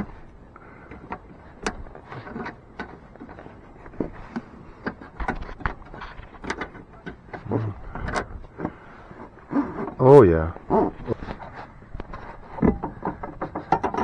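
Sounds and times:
metal rod scraping and tapping metal: 12.1 - 14.0.

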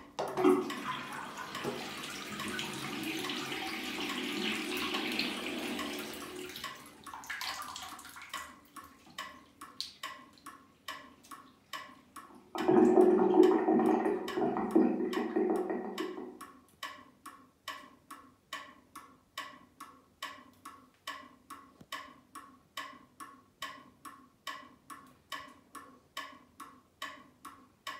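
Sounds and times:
waving cat toy ticking: 8.3 - 27.9.

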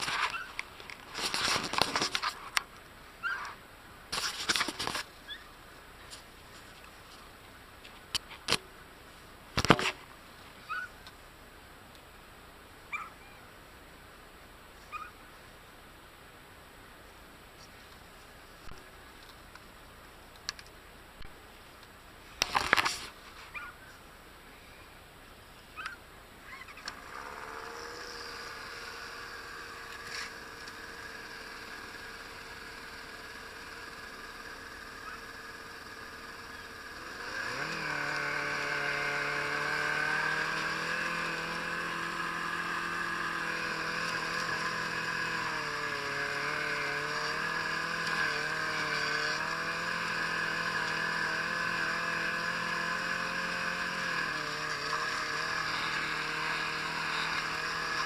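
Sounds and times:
snowmobile engine idling and revving: 0.0 - 8.7, 25.8 - 58.0.

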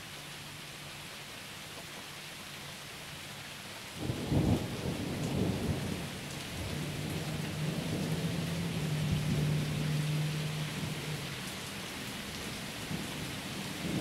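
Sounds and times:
rain falling: 0.0 - 14.0
thunder cracking and rumbling: 4.0 - 9.7, 13.7 - 14.0.

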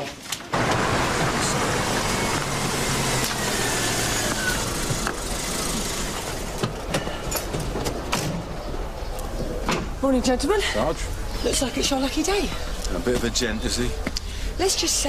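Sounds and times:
road and traffic noise: 0.0 - 15.0
car engine running: 0.5 - 6.6.

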